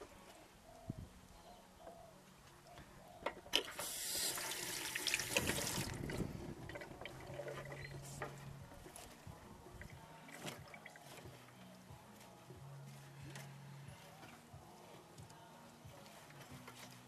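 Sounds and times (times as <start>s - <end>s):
tap running into metal sink: 3.7s - 6.2s
hands rinsed under water: 3.8s - 7.0s.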